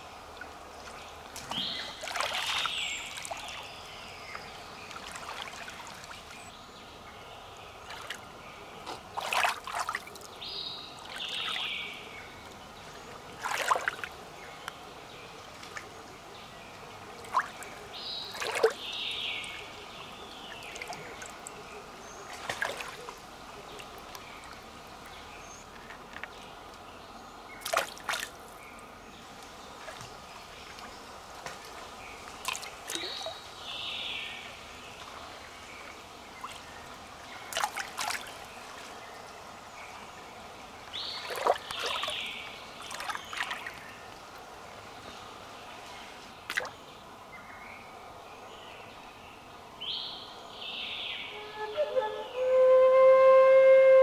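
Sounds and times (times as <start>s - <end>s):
water trickling: 0.0s - 6.5s, 16.7s - 26.8s, 35.0s - 39.1s, 40.1s - 44.4s
hands splashing in creek water: 0.8s - 3.7s, 4.8s - 6.4s, 8.8s - 10.4s, 13.4s - 14.2s, 17.2s - 18.9s, 22.3s - 24.1s, 27.6s - 28.6s, 29.7s - 33.4s, 37.5s - 38.9s, 41.2s - 43.9s, 46.5s - 46.8s.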